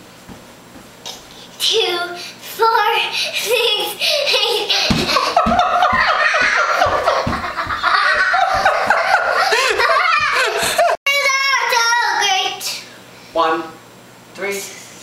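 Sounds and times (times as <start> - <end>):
girl giggling: 4.1 - 11.0
man belly laughing: 4.6 - 11.0
child's high voice: 11.1 - 12.8.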